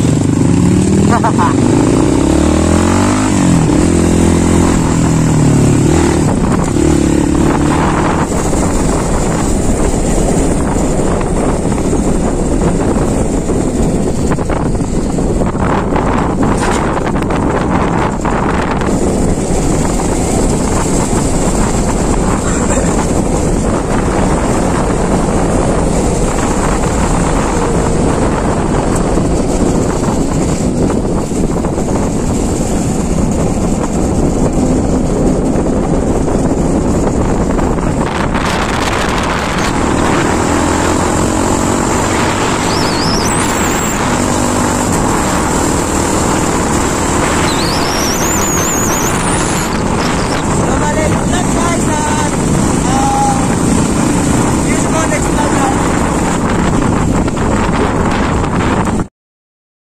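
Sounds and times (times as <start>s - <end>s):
motorcycle engine running: 0.0s - 59.1s
road noise: 0.0s - 59.1s
high-pitched rising squeals: 39.4s - 51.0s.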